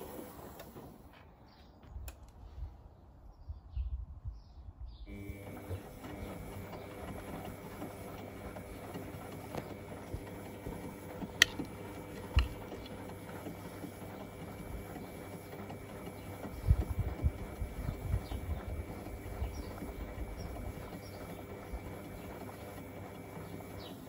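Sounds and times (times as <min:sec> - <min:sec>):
washing machine motor hum: 0:00.0 - 0:01.2, 0:05.1 - 0:24.0
sharp clicks: 0:10.8 - 0:13.0.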